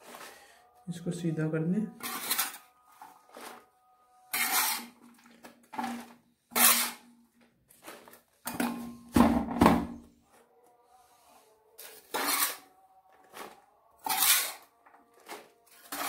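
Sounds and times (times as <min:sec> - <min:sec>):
trowel scraping metal tray: 0:02.0 - 0:03.6, 0:04.2 - 0:07.1, 0:11.8 - 0:16.0.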